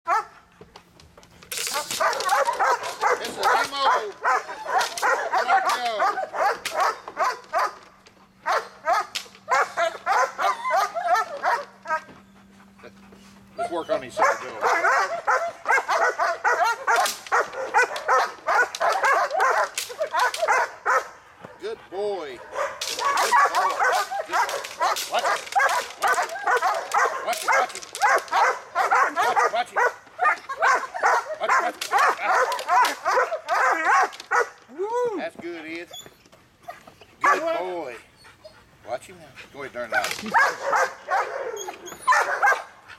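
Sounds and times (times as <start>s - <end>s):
dog barking rapidly: 1.7s - 7.8s, 8.4s - 12.0s, 13.6s - 21.6s, 22.4s - 34.6s, 37.2s - 37.5s, 39.9s - 42.8s.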